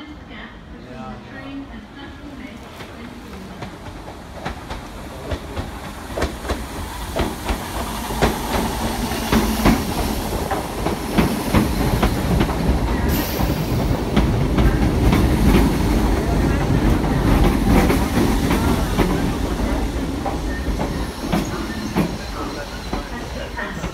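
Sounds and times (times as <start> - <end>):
train rumble: 1.8 - 23.9
train wheels clicking over rail joints: 3.6 - 22.2.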